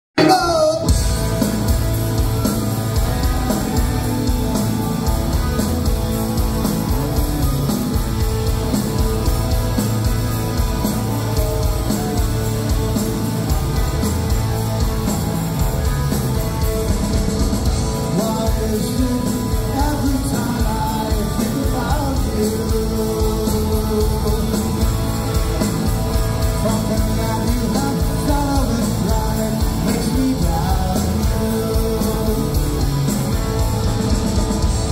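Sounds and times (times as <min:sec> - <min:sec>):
man singing: 0:00.2 - 0:01.0, 0:17.9 - 0:25.1, 0:26.4 - 0:33.0
live rock band: 0:00.2 - 0:34.9.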